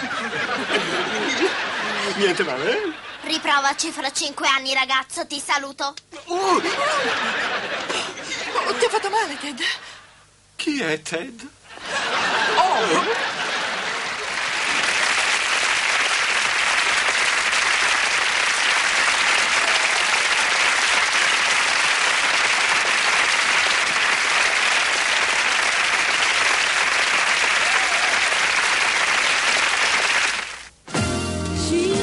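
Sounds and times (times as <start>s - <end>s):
audience applauding: 12.3s - 30.7s
music: 30.9s - 32.0s.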